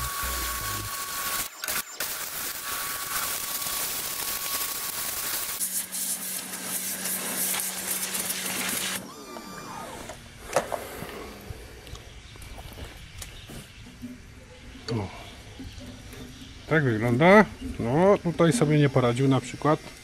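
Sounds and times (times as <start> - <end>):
pressure washer jet hissing: 0.0 - 11.7
steady low hum: 9.0 - 19.6.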